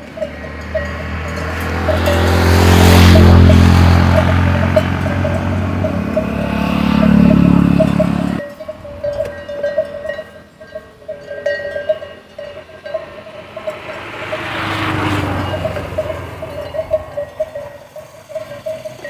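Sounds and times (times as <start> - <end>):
vehicle engine running: 0.0 - 8.4, 12.2 - 19.0
cow bell clanking: 0.0 - 19.0
vehicle noise: 0.0 - 19.0.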